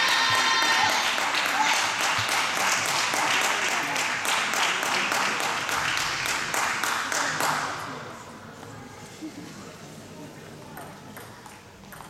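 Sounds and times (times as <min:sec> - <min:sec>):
spectators clapping: 0:00.0 - 0:07.8.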